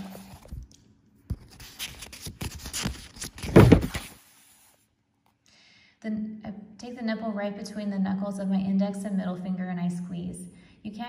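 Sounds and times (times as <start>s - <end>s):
book page turning: 0.0s - 4.8s.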